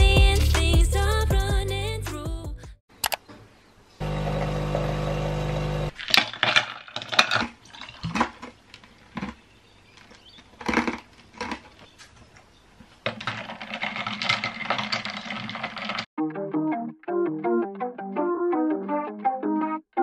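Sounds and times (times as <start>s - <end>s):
espresso machine pump buzzing: 4.0s - 5.9s
straw stirring iced coffee: 6.0s - 12.0s, 13.0s - 16.1s.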